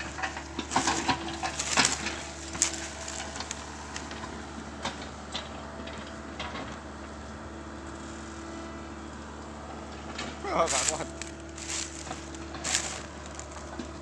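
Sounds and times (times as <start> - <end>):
wood and roots crackling: 0.0 - 5.4, 10.0 - 14.0
excavator diesel engine running: 0.0 - 14.0.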